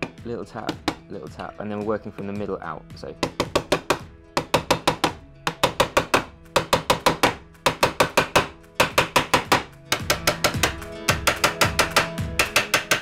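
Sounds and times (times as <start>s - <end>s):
hammer tapping fret wire: 3.2s - 13.0s.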